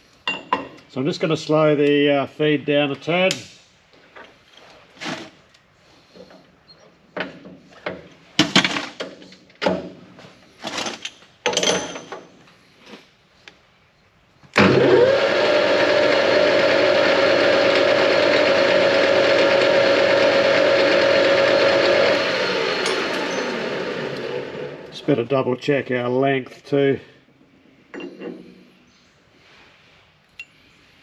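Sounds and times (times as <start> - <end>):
lathe gear whine: 14.6 - 25.0.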